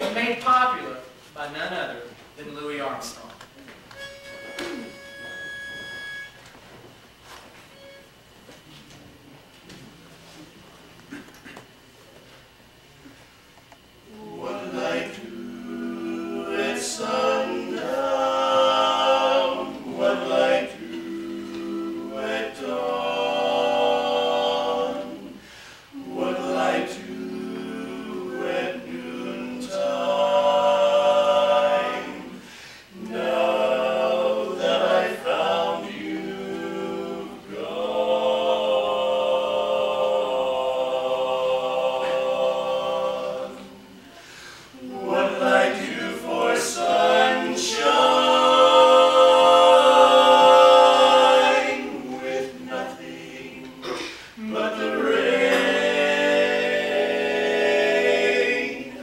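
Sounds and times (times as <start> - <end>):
male quartet singing a cappella: 14.0 - 59.0.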